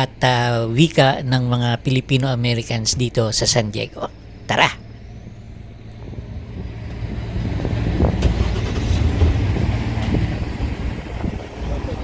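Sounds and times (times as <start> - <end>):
car driving past slowly: 4.9 - 12.0.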